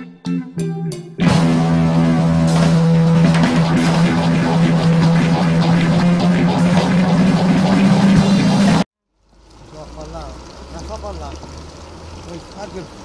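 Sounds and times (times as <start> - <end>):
plucked guitar notes: 0.0 - 8.8
rock band with drums and guitar: 0.0 - 8.8.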